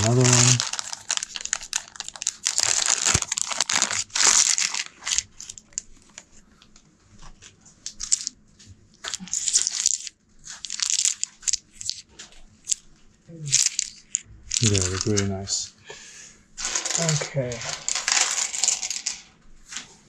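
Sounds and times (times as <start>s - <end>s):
plastic chips clicking: 0.0s - 6.2s, 7.8s - 8.4s, 9.0s - 12.8s, 13.5s - 15.3s, 16.6s - 19.2s
plastic bag crinkling: 0.0s - 6.4s, 7.8s - 8.4s, 9.0s - 12.8s, 13.5s - 15.6s, 16.6s - 19.1s.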